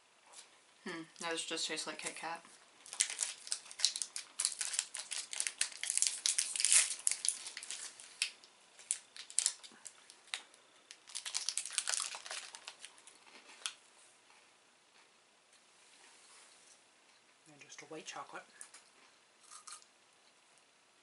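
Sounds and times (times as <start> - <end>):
plastic wrappers crinkling and tearing: 2.8 - 13.8.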